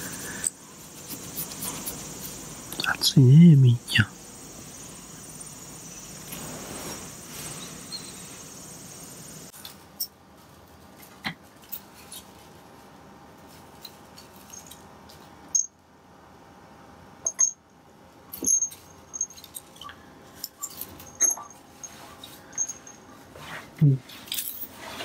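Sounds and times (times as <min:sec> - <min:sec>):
collar bell jingling: 0:18.4 - 0:23.2.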